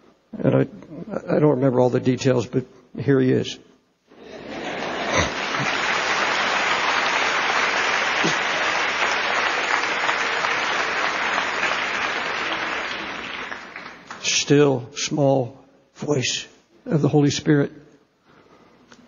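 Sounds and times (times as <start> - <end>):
congregation applauding: 4.3 - 14.4.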